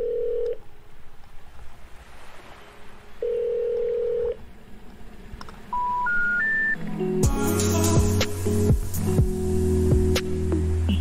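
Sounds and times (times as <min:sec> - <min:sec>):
sparse electronic music: 0:05.7 - 0:11.0
faint hiss: 0:07.3 - 0:11.0.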